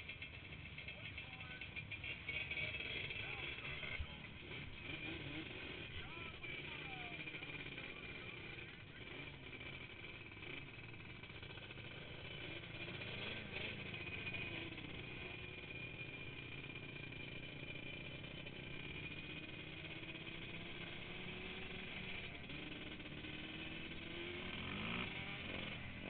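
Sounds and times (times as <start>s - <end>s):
quad engines running: 0.0s - 26.0s.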